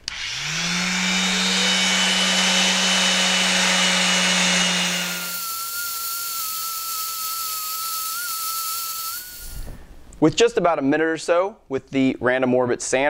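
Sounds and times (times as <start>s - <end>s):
orbital sander running: 0.0s - 9.5s.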